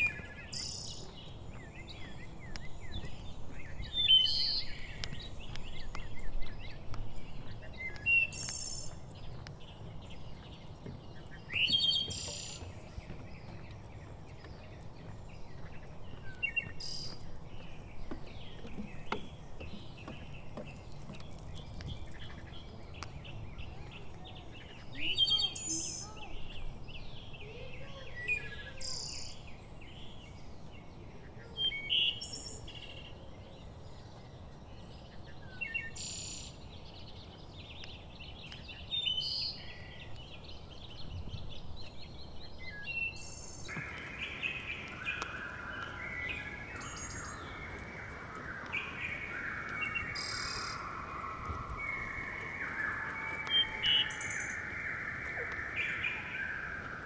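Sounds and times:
birds chirping: 0.0 - 57.0.

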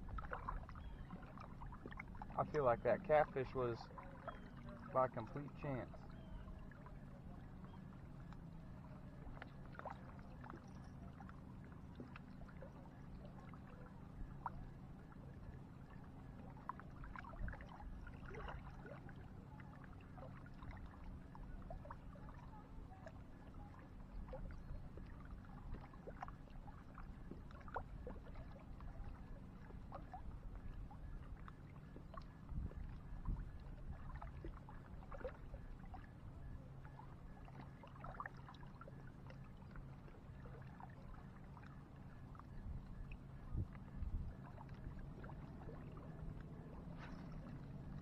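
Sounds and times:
wind rumble on microphone: 0.0 - 2.0, 30.1 - 35.4, 42.5 - 48.0.

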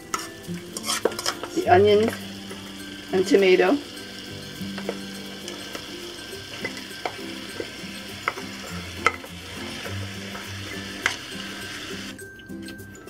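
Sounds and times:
chicken sizzling in a frying pan: 0.0 - 12.2
food scraped off metal tin: 0.1 - 1.5.

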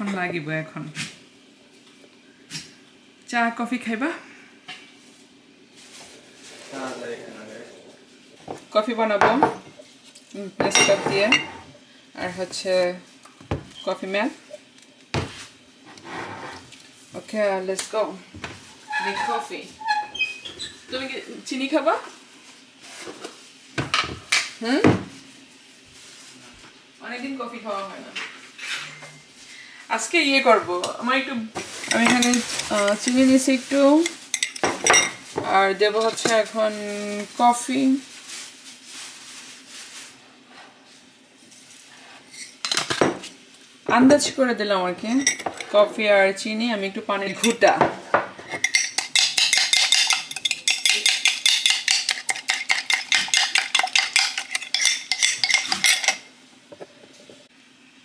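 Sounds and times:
person's voice: 30.0 - 34.1
spoon stirring in ceramic mug: 31.8 - 35.1, 48.5 - 56.3.

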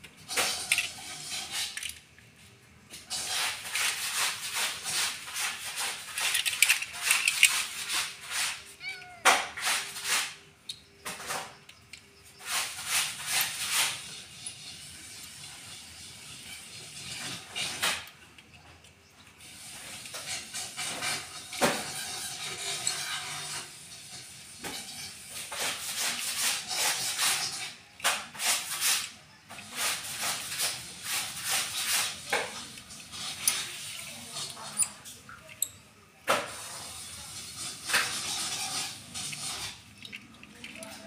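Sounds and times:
plastic parts rustling: 0.0 - 23.7, 24.6 - 41.0
plastic parts clicking: 5.8 - 8.0, 39.3 - 41.0.

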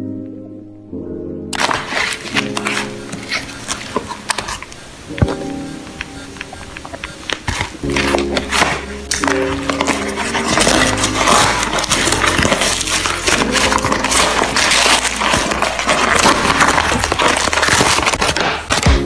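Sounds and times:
plastic bag tearing and crumpling: 1.6 - 4.8, 7.3 - 19.0.

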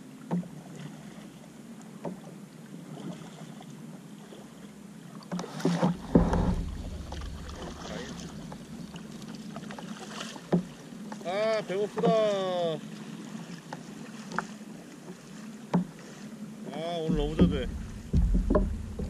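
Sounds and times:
low thump: 5.9 - 9.4, 17.1 - 19.0
knocks on plastic kayak: 17.0 - 19.0.

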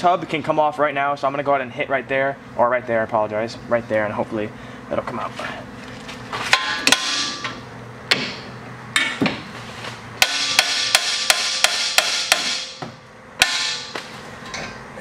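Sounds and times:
hammer striking metal: 6.5 - 9.4, 10.2 - 14.8.

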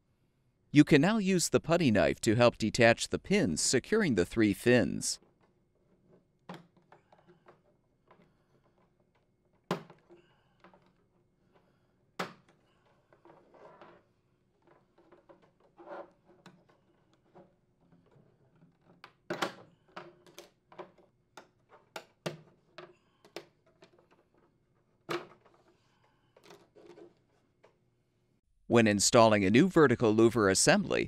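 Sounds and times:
soft handling sounds: 19.8 - 27.9.

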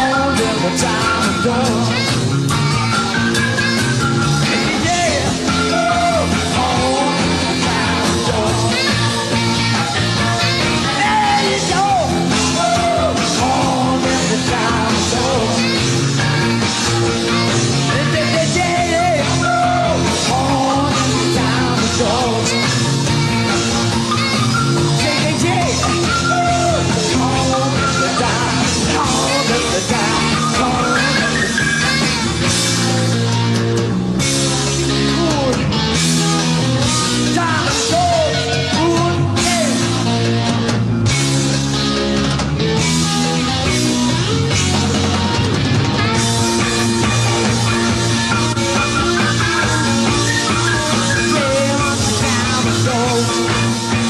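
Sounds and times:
person singing: 0.0 - 3.8, 4.4 - 16.7, 17.3 - 24.3, 24.9 - 32.9, 48.8 - 54.0
rock band playing: 0.0 - 54.0.

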